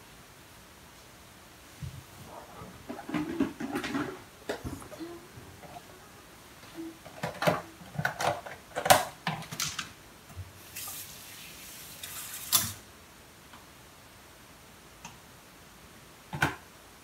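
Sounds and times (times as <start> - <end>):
plastic dishes clattering: 2.3 - 5.9, 6.6 - 9.9.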